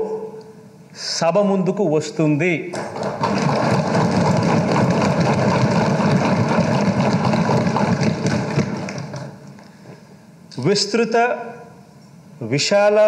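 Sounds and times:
people thumping wooden desks: 2.8s - 9.4s.

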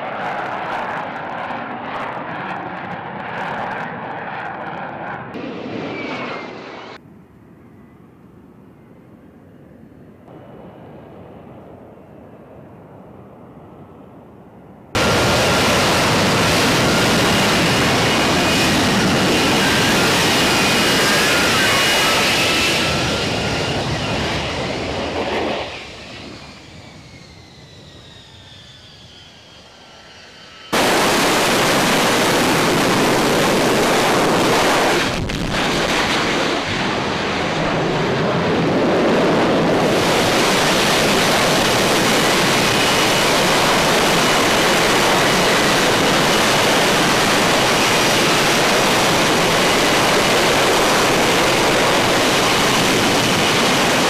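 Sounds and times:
loud jet roar: 0.0s - 7.0s, 14.9s - 54.0s
jet engine whine: 0.0s - 54.0s.

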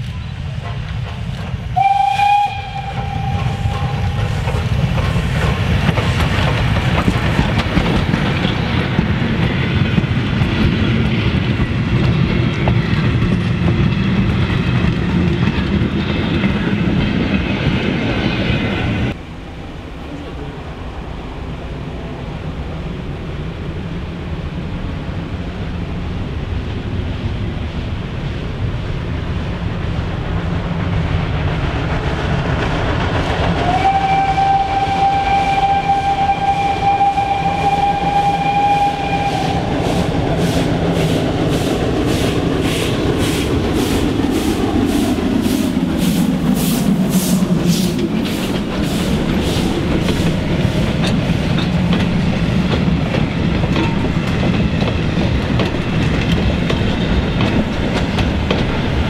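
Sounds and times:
train wheels clattering: 0.0s - 19.2s, 30.8s - 59.0s
distant train rumble: 0.0s - 59.0s
steam locomotive whistle: 1.7s - 4.4s, 33.6s - 41.2s.

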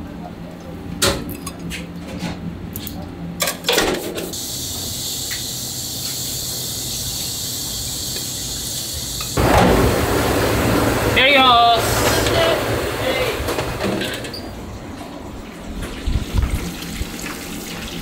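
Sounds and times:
steady high hiss: 4.4s - 14.1s.

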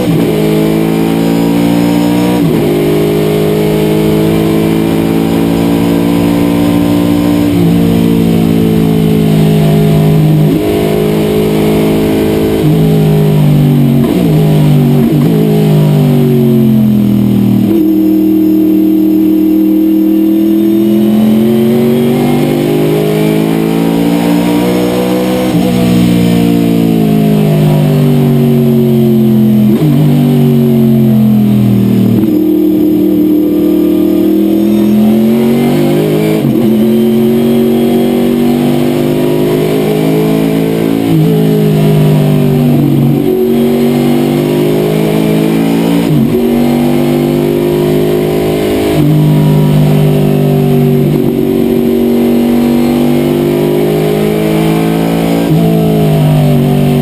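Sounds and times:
race car engine under load: 0.0s - 57.0s
gear changes: 32.1s - 38.4s.

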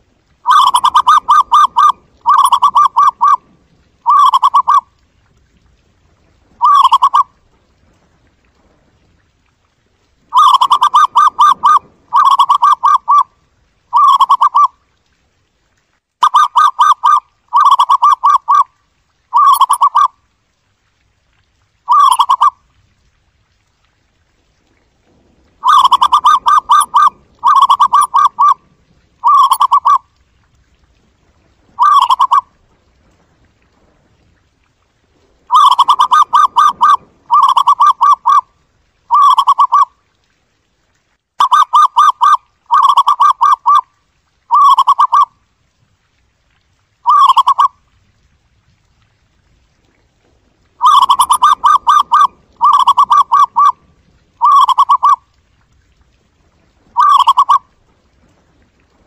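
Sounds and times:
dove cooing: 0.4s - 3.4s, 4.0s - 4.8s, 6.6s - 7.3s, 10.3s - 13.3s, 13.9s - 14.7s, 16.3s - 18.6s, 19.3s - 20.1s, 21.9s - 22.5s, 25.6s - 28.6s, 29.2s - 30.0s, 31.8s - 32.4s, 35.5s - 38.4s, 39.1s - 39.9s, 47.1s - 47.7s, 50.8s - 53.8s, 54.4s - 55.2s, 57.0s - 57.6s.

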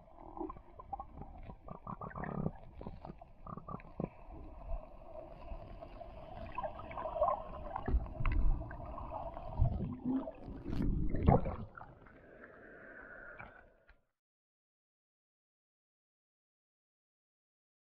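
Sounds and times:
underwater gurgling swishes: 0.0s - 13.9s.

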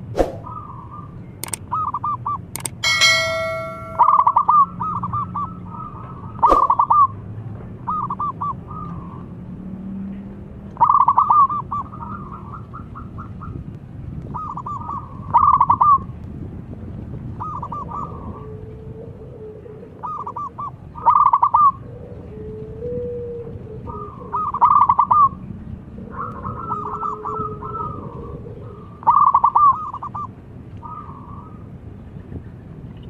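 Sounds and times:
sharp click: 1.4s - 1.6s, 2.6s - 4.0s.

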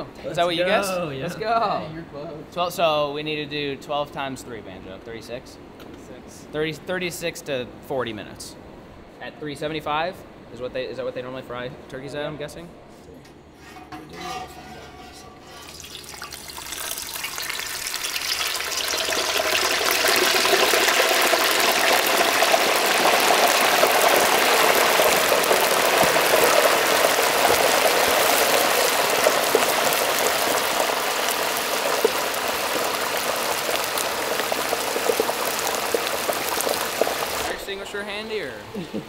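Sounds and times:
hot oil sizzling and bubbling: 15.4s - 38.0s.

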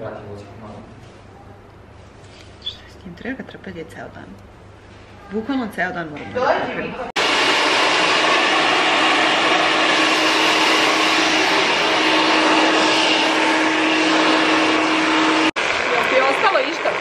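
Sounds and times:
hair dryer blowing: 7.2s - 17.0s.

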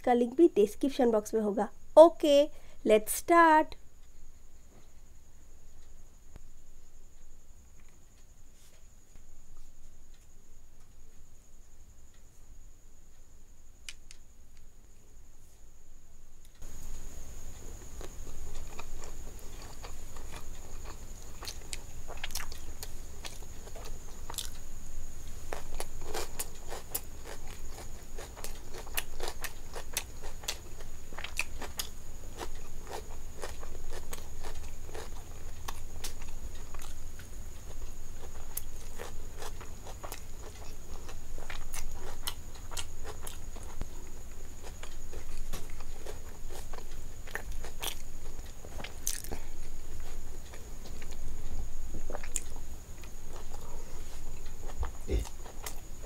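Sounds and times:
faint high whine: 0.0s - 29.1s
person chewing: 17.9s - 24.6s, 25.5s - 55.9s.

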